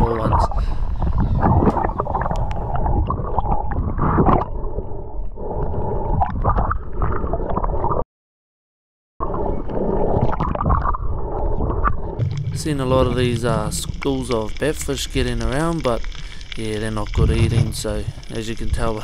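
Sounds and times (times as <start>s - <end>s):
bubbly clicks: 0.0s - 4.5s, 11.7s - 19.0s
water gurgling and sloshing: 0.0s - 8.0s, 9.2s - 19.0s.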